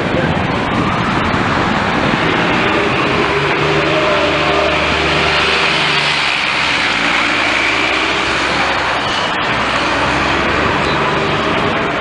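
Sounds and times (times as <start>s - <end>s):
bus diesel engine accelerating: 0.1s - 12.0s.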